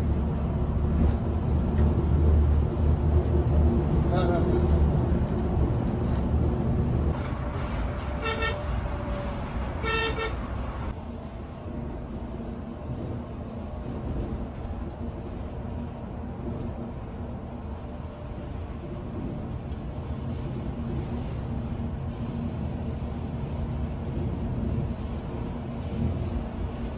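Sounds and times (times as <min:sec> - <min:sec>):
bus engine and road rumble: 0:00.0 - 0:26.9
vehicle horn blasts: 0:08.1 - 0:08.8, 0:09.8 - 0:10.4.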